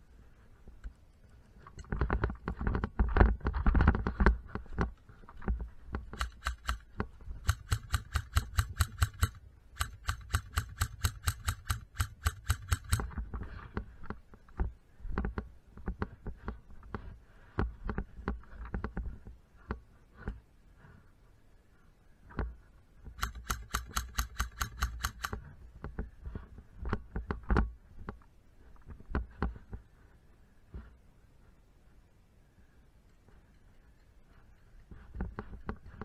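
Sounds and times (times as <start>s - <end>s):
rapid even clicking: 5.9s - 13.2s, 23.2s - 25.4s.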